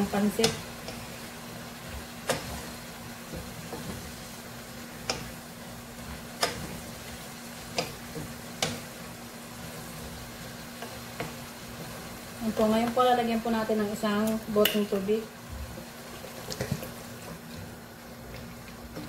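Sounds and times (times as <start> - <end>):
low frying sizzle: 0.0 - 19.0
wooden spatula knocking on pan: 7.7 - 8.9.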